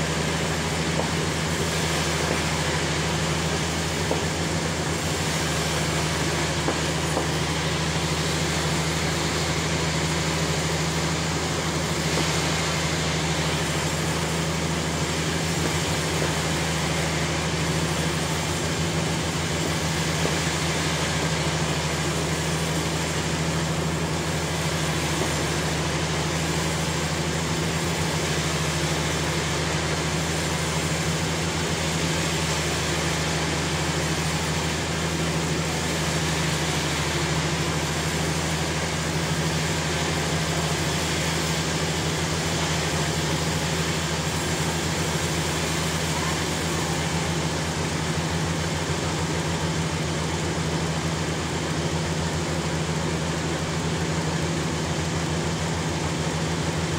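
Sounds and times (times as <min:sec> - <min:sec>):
sawmill machinery running: 0:00.0 - 0:56.9.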